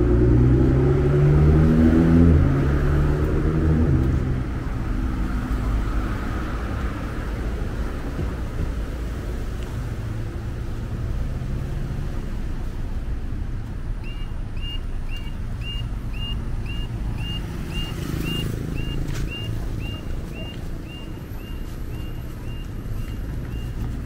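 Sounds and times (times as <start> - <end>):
road traffic rumble: 0.0 - 24.0
high electronic beeps: 14.0 - 23.8.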